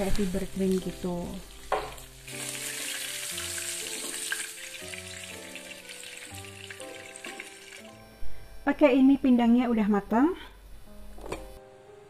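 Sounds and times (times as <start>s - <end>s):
oil sizzling as fish fry: 0.0s - 8.4s
soft background music: 0.0s - 12.0s.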